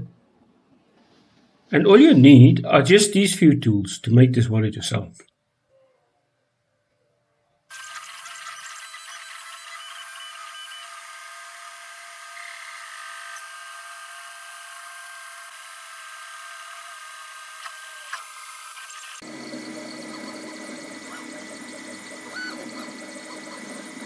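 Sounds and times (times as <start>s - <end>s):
stepper motors whining: 7.7s - 24.0s.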